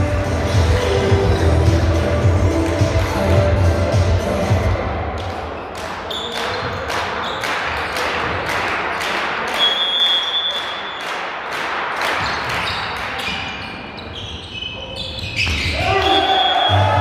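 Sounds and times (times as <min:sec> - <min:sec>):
spectators clapping in rhythm: 0:00.0 - 0:13.2
crowd noise: 0:00.0 - 0:17.0
high whistle-like tone: 0:09.6 - 0:11.0.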